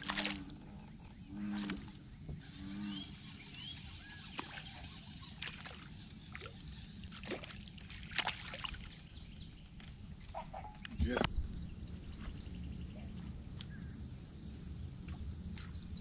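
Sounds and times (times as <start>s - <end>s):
fish splashing in water: 0.0s - 0.4s, 4.4s - 9.1s
faint bird chirps: 2.3s - 7.7s, 10.3s - 14.0s.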